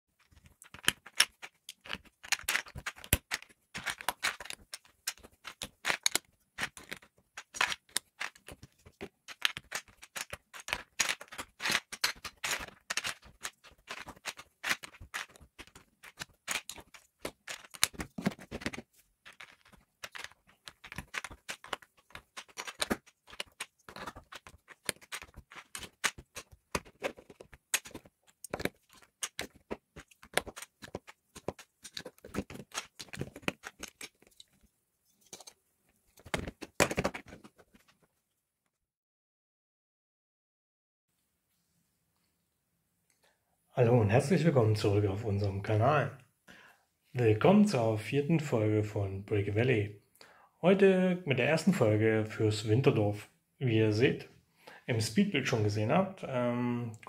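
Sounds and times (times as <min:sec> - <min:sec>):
plastic bricks clicking: 0:00.2 - 0:35.6, 0:36.2 - 0:37.9.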